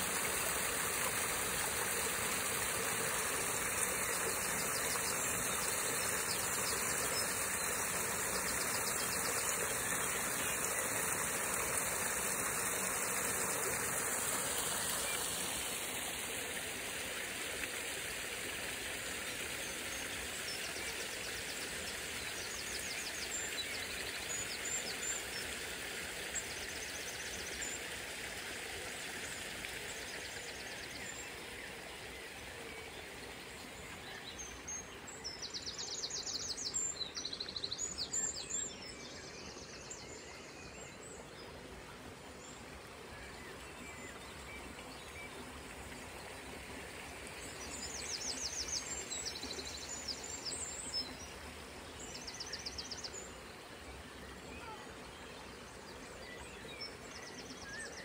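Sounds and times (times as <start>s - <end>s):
water splashing over rocks: 0.0s - 19.0s.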